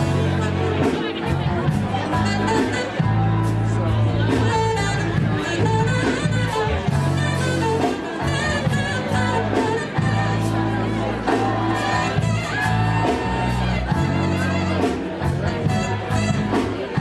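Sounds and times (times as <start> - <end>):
bass guitar: 0.0 - 17.0
guitar: 0.0 - 17.0.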